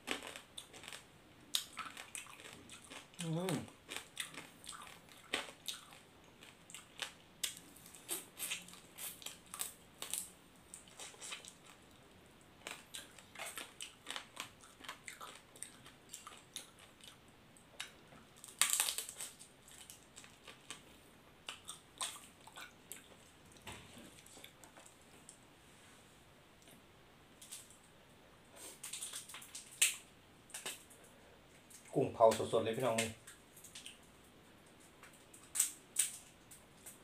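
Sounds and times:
chewing crunches: 0:00.0 - 0:12.0, 0:12.6 - 0:17.2.

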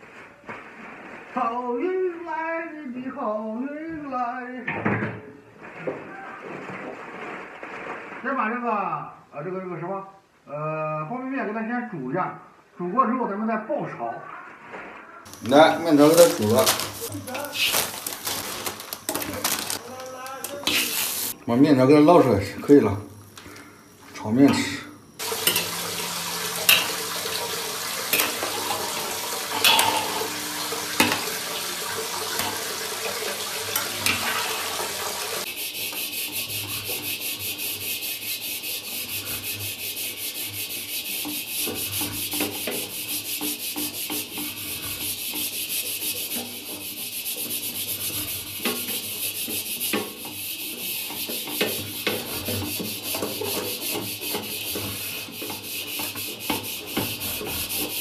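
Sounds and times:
wire scrubber scrubbing wok: 0:15.3 - 0:21.4, 0:25.2 - 0:58.0
metal utensils clanking on wok: 0:25.4 - 0:25.8, 0:26.7 - 0:27.0, 0:28.1 - 0:28.9, 0:29.5 - 0:30.4.

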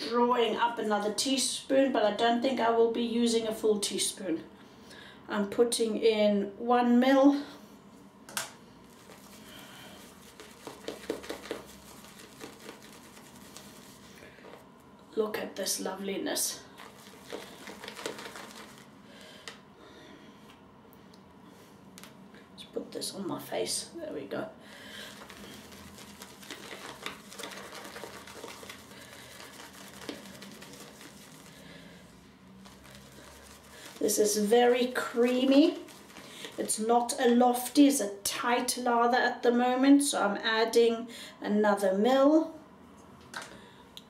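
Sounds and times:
shaving brush whisking lather: 0:08.9 - 0:14.6, 0:16.6 - 0:19.0, 0:25.0 - 0:37.8.

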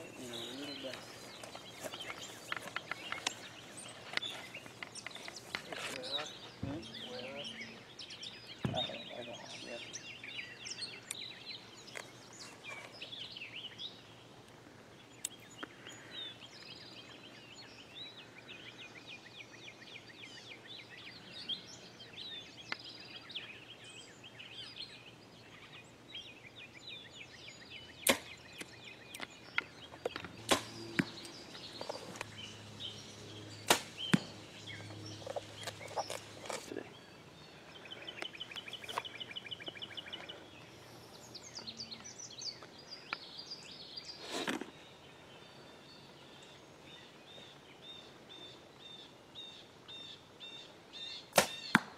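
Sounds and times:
birds chirping: 0:00.0 - 0:51.9
bow shot snaps: 0:28.0 - 0:28.4, 0:33.7 - 0:34.3, 0:51.4 - 0:51.9.

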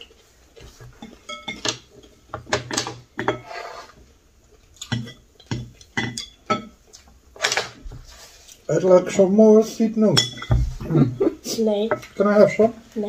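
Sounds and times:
chopsticks clinking on ceramic bowls: 0:01.0 - 0:01.9, 0:04.8 - 0:06.8, 0:10.1 - 0:10.6.

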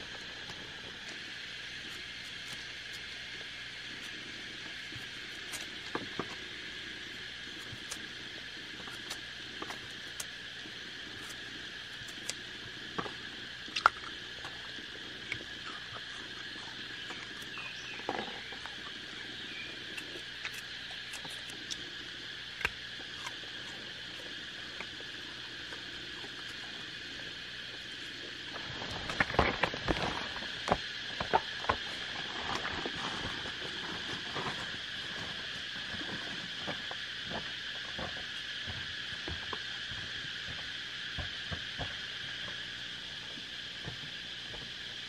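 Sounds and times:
forest insects chorus: 0:00.0 - 0:45.0.

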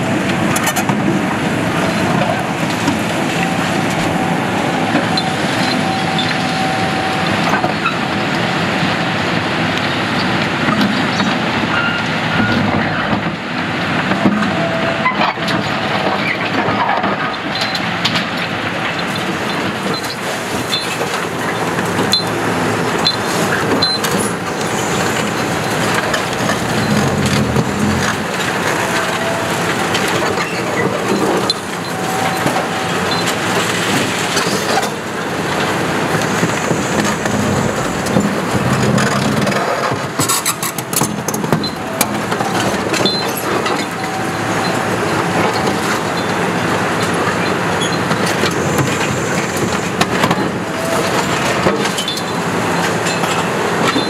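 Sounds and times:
diesel engine running: 0:00.0 - 0:54.0
high squeaks: 0:23.8 - 0:29.6.

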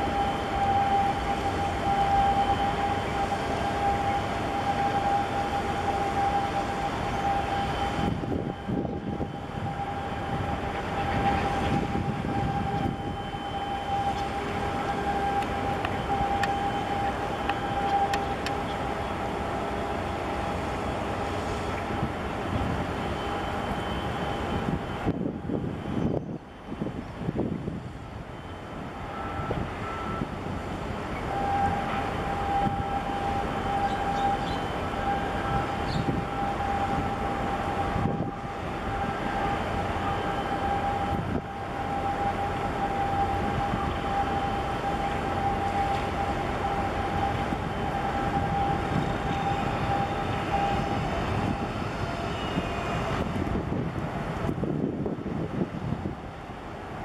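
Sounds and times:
high-pitched whine: 0:00.0 - 0:30.4, 0:31.1 - 0:53.9
boat engines rumbling: 0:00.0 - 0:57.0
wind noise on microphone: 0:06.1 - 0:17.1, 0:21.3 - 0:33.9, 0:34.5 - 0:46.2, 0:47.0 - 0:57.0.

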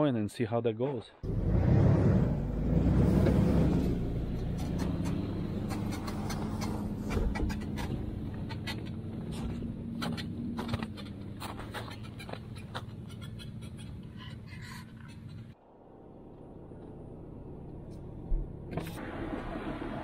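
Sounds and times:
suv engine pulling trailer: 0:01.3 - 0:13.8.

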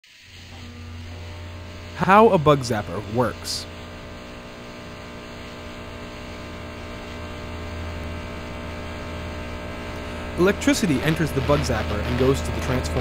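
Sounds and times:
faint hiss: 0:00.0 - 0:00.6
electrical mains hum: 0:00.1 - 0:13.0.

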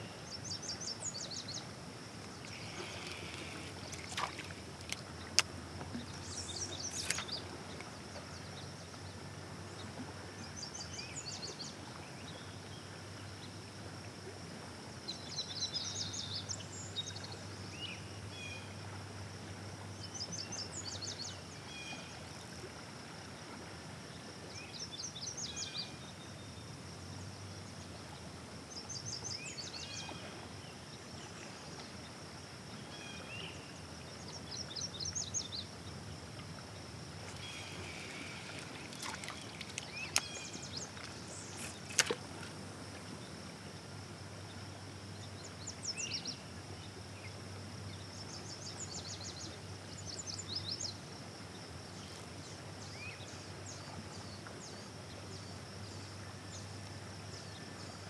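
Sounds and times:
high insect buzz: 0:02.4 - 0:04.6.

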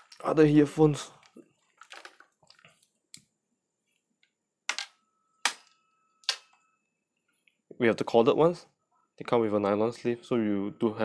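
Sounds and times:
earphone cable rustling: 0:00.0 - 0:04.9.

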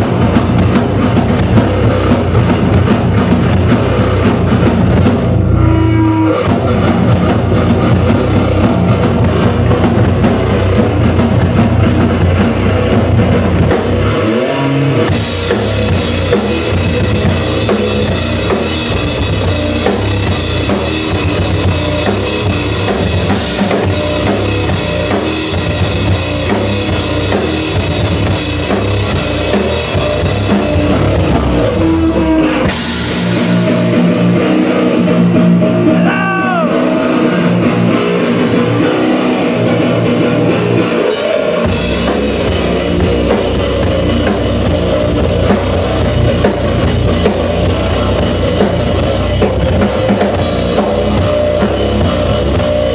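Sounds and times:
bass guitar: 0:00.0 - 0:52.9
distorted electric guitar: 0:00.0 - 0:52.9
drum kit: 0:00.0 - 0:52.9
bending guitar note: 0:05.4 - 0:09.0.

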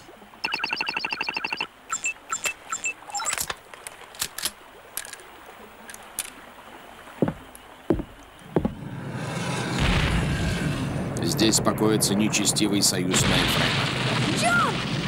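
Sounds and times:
high electronic beeps: 0:00.4 - 0:03.4
low thuds: 0:07.2 - 0:09.0.

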